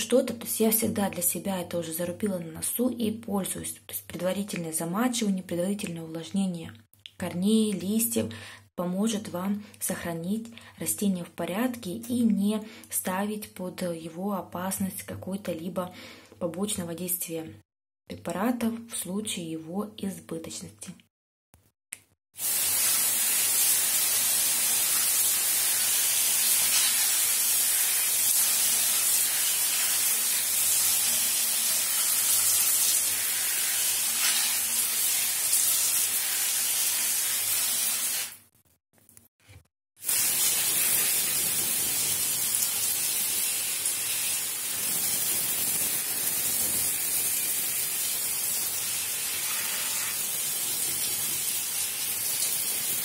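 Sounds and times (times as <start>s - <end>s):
water spraying on leaves: 22.4s - 38.4s, 40.0s - 53.0s.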